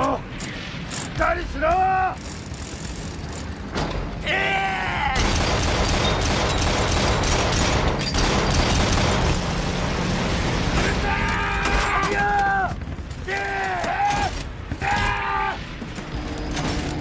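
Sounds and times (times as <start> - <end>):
rapid gunfire: 5.2 - 9.7.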